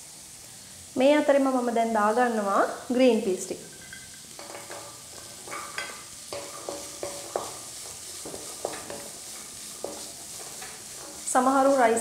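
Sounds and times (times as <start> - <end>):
vegetables sizzling in oil: 0.0 - 12.0
wooden spatula knocking pan: 3.8 - 11.3.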